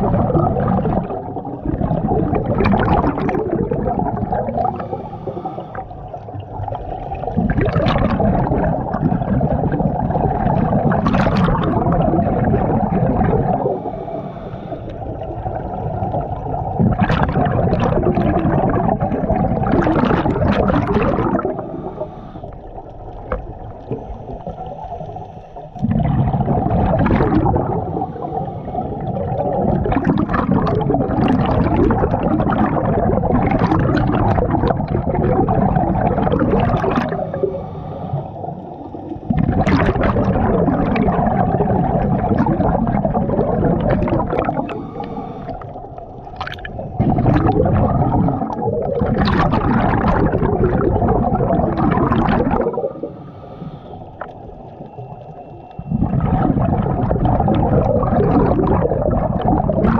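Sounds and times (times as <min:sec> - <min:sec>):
bubbles gurgling underwater: 0:00.0 - 0:59.9
diver breathing through regulator: 0:04.4 - 0:06.3, 0:13.0 - 0:15.8, 0:20.2 - 0:30.2, 0:36.7 - 0:39.3, 0:42.5 - 0:47.8, 0:52.3 - 0:58.0.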